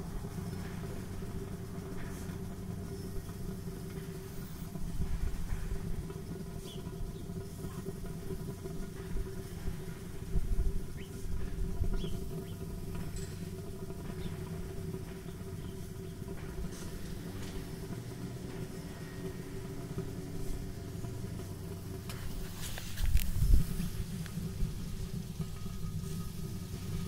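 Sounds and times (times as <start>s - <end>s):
fire rumbling and crackling: 0.0s - 27.0s.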